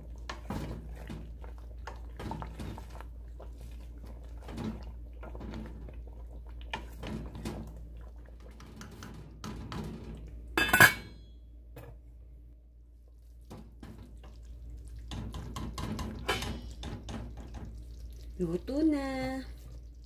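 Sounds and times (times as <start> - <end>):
wooden spatula stirring stew: 0.0 - 10.1, 13.2 - 18.3.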